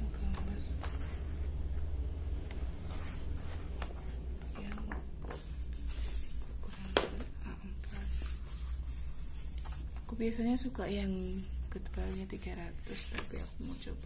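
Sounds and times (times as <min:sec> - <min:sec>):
steady low hum: 0:00.0 - 0:14.0
paper rustling: 0:02.5 - 0:10.4, 0:11.4 - 0:14.0.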